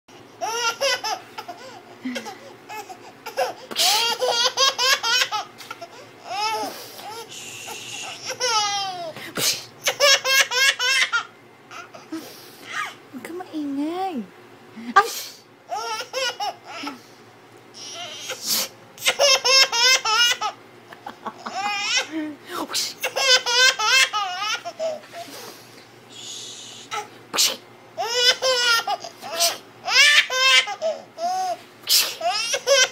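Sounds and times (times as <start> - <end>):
baby laughing: 0.4 - 7.3, 7.9 - 9.2, 9.8 - 13.0, 15.7 - 17.0, 19.0 - 22.2, 23.0 - 25.1, 28.0 - 31.6, 32.2 - 32.9.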